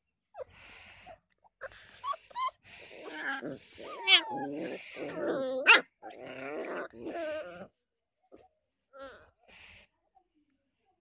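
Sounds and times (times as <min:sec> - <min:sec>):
puppies yelping: 0:01.6 - 0:06.2
puppies growling: 0:01.6 - 0:07.8.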